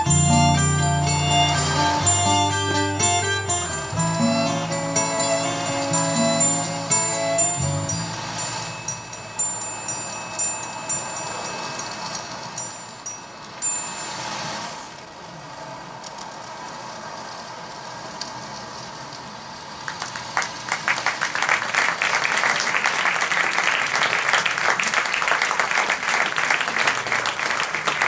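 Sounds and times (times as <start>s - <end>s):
high chime-like tones: 0.0s - 15.0s
audience applauding: 19.9s - 28.0s.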